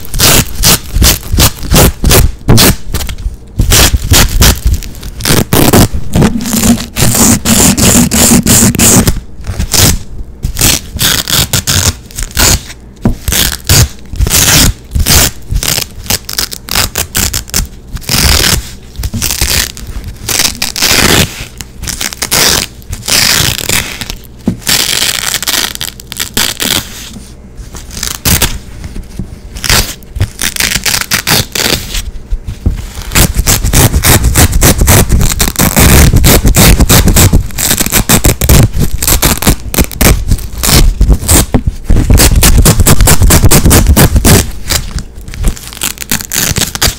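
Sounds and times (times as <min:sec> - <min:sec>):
hook-and-loop straps ripping: 0:33.0 - 0:46.9.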